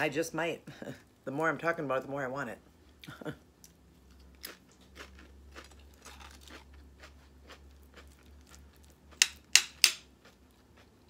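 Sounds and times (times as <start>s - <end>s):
chips crunching and snapping: 3.7s - 11.0s.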